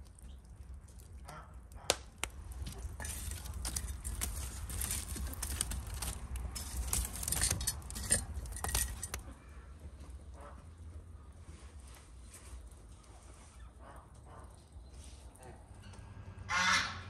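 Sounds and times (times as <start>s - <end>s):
fire crackling: 1.9s - 9.2s
metal poker scraping logs and brick: 2.2s - 9.4s.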